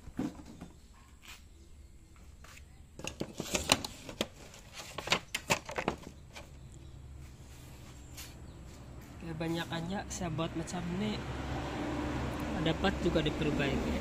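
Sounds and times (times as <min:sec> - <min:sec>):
rustling and clicking handling noise: 0:02.6 - 0:06.8.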